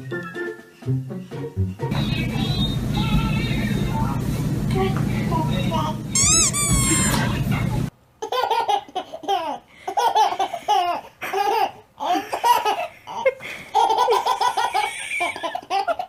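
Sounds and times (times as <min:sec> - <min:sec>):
baby giggling: 0:06.2 - 0:07.2, 0:08.2 - 0:16.0.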